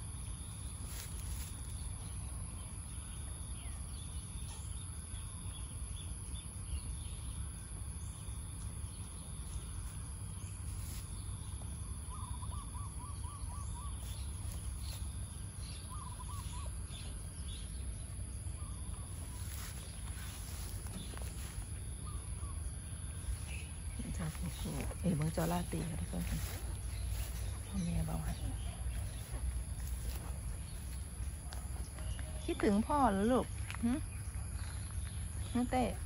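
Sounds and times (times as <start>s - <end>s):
insect drone: 0.0s - 36.0s
dog rustling in grass: 19.1s - 22.1s, 23.1s - 32.1s.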